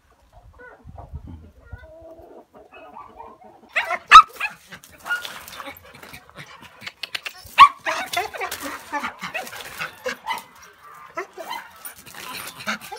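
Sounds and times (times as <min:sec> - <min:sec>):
faint hen clucking: 0:00.4 - 0:04.0
dog barking: 0:03.8 - 0:05.3.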